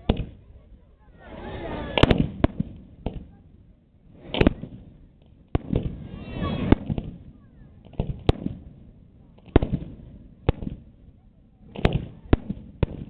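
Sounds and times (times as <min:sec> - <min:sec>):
fireworks bangs: 0:01.1 - 0:03.5, 0:04.1 - 0:13.0
fireworks hissing crackle: 0:05.6 - 0:07.2.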